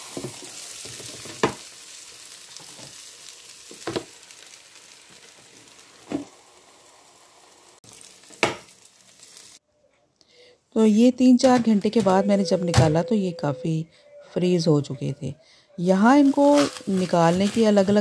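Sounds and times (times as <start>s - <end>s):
meat sizzling on a grill: 0.0s - 9.6s, 16.2s - 18.0s.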